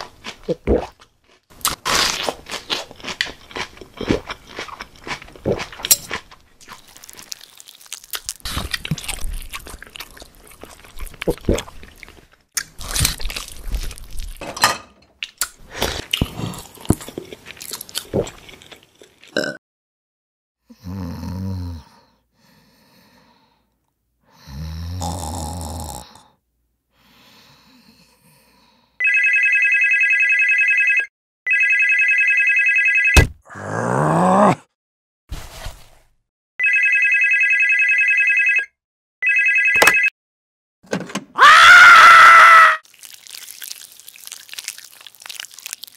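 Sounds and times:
crunching and clicking: 0:04.5 - 0:10.2, 0:42.9 - 0:45.9
man snoring: 0:20.7 - 0:22.0, 0:24.4 - 0:26.2
desk phone ringing: 0:29.0 - 0:33.2, 0:36.6 - 0:40.1.

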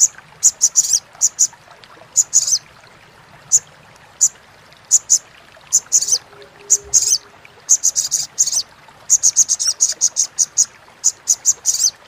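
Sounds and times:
sunbird chattering calls: 0:04.9 - 0:11.9.

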